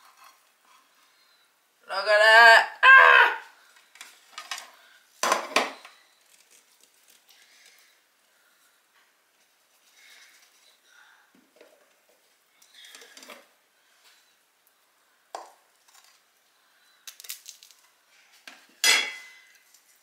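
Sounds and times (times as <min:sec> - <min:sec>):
utensil scraping and clinking on dishes: 0:00.0 - 0:01.3, 0:18.8 - 0:19.7.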